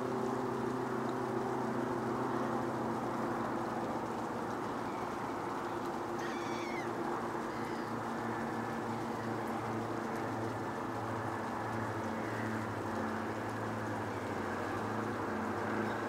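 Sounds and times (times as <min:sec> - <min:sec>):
low engine hum: 0:00.0 - 0:16.0
bird call: 0:06.2 - 0:08.5.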